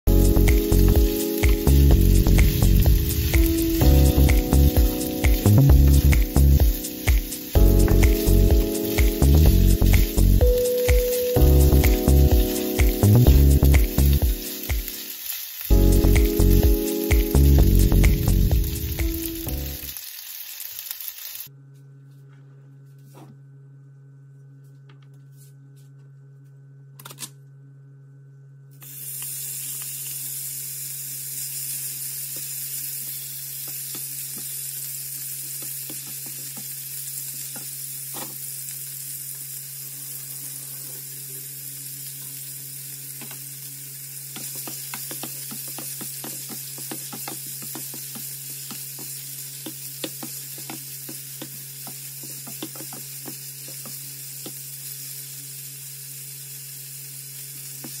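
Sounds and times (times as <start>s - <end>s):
steady low hum: 0.1s - 14.4s
chicken sizzling in hot oil: 0.1s - 21.5s, 28.8s - 58.0s.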